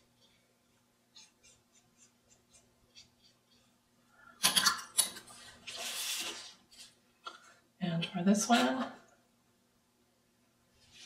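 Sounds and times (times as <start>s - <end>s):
brush strokes on paper: 0.0s - 3.7s.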